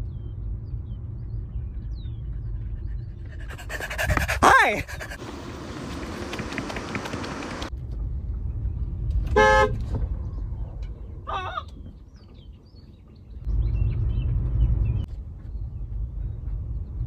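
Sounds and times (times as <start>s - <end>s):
car horn toot: 9.3s - 9.8s.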